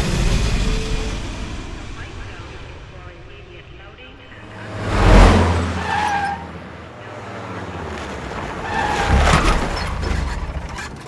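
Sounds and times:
truck engine revving: 3.9s - 11.0s
tires squealing: 4.4s - 11.0s.

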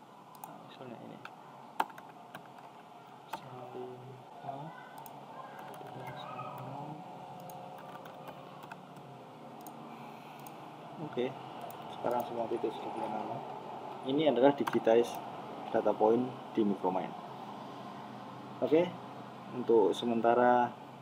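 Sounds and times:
computer mouse clicks: 1.2s - 2.7s, 5.0s - 6.7s, 7.4s - 10.6s, 11.6s - 12.3s, 14.6s - 15.2s
keyboard key presses: 1.2s - 2.7s, 5.0s - 6.7s, 7.4s - 9.0s, 14.6s - 14.9s.

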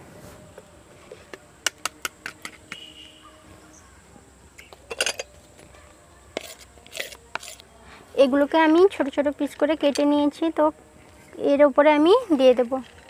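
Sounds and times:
kitchenware clicking and clinking: 4.8s - 5.4s.

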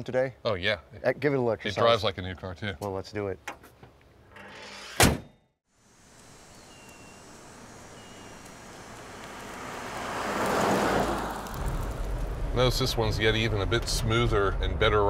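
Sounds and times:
car hood slamming: 5.0s - 5.4s
car driving past: 7.1s - 14.0s.

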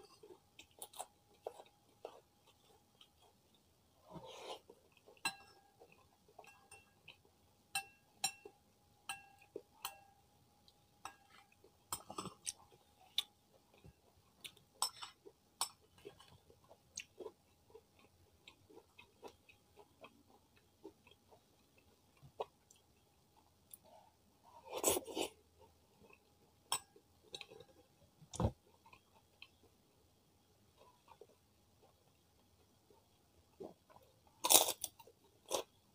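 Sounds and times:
metal spoon clinking in bowl: 7.7s - 8.5s, 9.1s - 10.2s.

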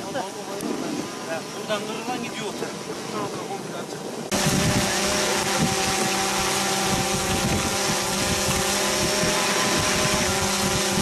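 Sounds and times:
wind noise on microphone: 4.0s - 11.0s
motor running: 4.3s - 11.0s.

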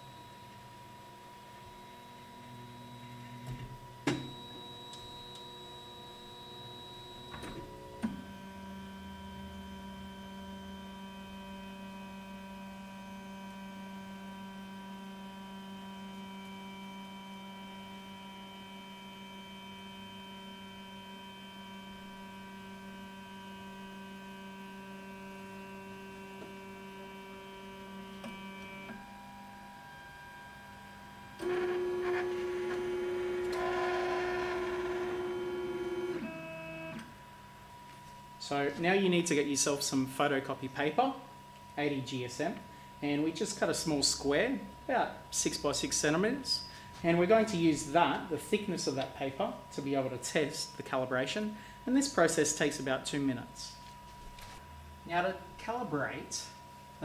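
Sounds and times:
loud machine tone: 4.1s - 11.8s, 31.4s - 37.1s
stepper motor whine: 15.2s - 37.1s.

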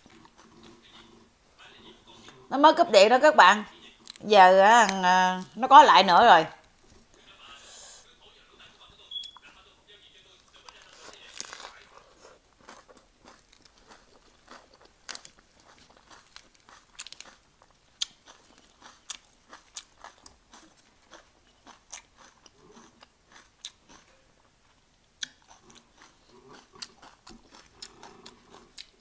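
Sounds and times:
crunchy chewing: 0.0s - 1.3s, 10.3s - 29.0s.

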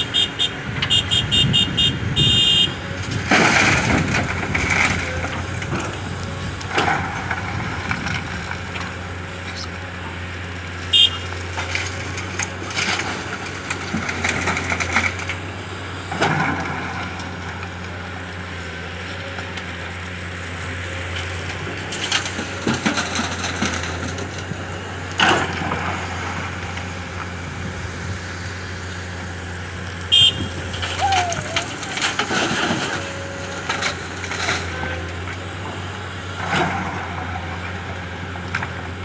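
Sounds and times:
excavator diesel engine droning: 0.0s - 39.0s
soil and stones crashing into truck: 3.0s - 8.7s, 30.3s - 35.1s.

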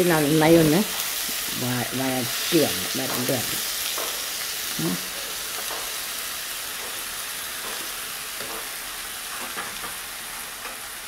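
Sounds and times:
onions sizzling in a pan: 0.0s - 11.0s
spoon scraping a pan: 2.3s - 10.9s.

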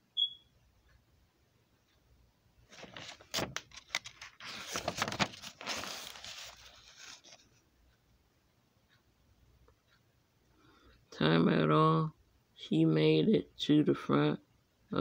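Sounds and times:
paper page turning: 2.7s - 7.5s.

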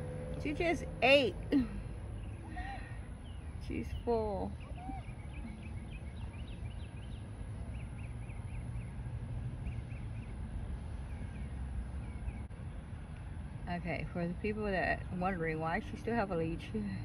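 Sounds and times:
small birds chirping: 0.0s - 13.4s
steady low rumble: 0.0s - 17.0s.

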